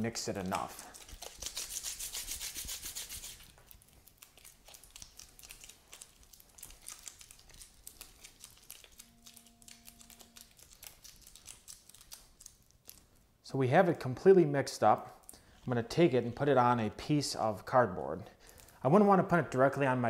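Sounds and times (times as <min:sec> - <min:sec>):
gloves crinkling and rubbing: 0:00.0 - 0:13.5.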